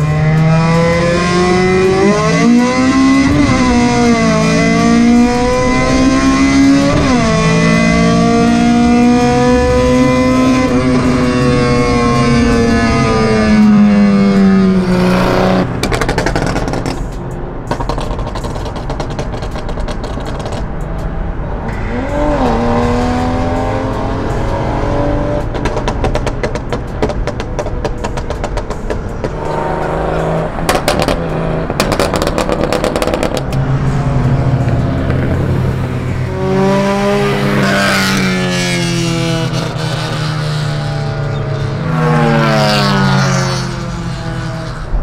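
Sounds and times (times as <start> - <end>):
rapid exhaust crackling: 0.0 - 21.1
car engines accelerating hard: 0.0 - 45.0.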